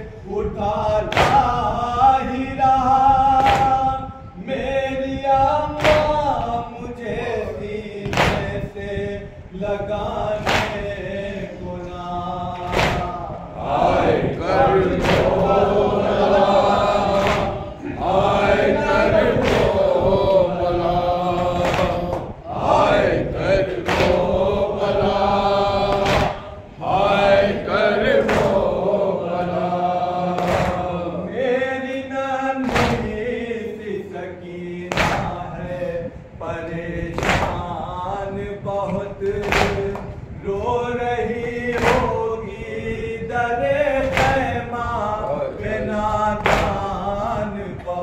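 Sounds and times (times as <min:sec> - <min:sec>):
men chanting a lament: 0:00.0 - 0:48.0
hands slapping on chests: 0:01.1 - 0:01.5, 0:03.4 - 0:03.8, 0:05.8 - 0:06.2, 0:08.1 - 0:08.6, 0:10.4 - 0:10.8, 0:12.6 - 0:13.2, 0:15.0 - 0:15.6, 0:17.2 - 0:17.6, 0:19.4 - 0:19.8, 0:21.6 - 0:22.3, 0:23.8 - 0:24.3, 0:25.9 - 0:26.5, 0:30.4 - 0:31.0, 0:32.6 - 0:33.1, 0:34.9 - 0:35.4, 0:37.2 - 0:37.6, 0:39.4 - 0:40.1, 0:44.0 - 0:44.4, 0:46.4 - 0:46.8.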